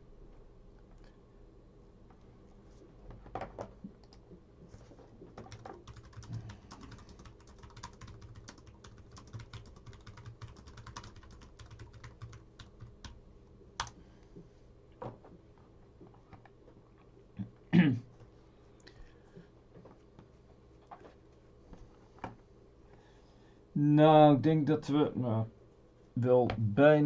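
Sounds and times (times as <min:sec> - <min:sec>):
computer keyboard typing: 0:05.3 - 0:13.2, 0:13.8 - 0:14.0.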